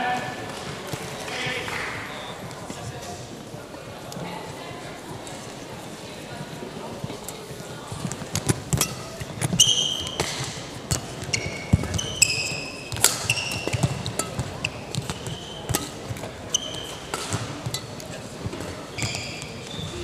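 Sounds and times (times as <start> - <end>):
sports shoes squeaking on court: 8.4 - 20.0.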